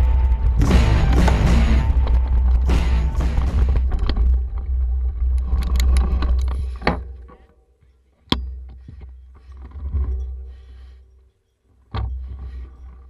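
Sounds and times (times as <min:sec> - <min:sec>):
rattles and clicks: 0:00.0 - 0:07.6.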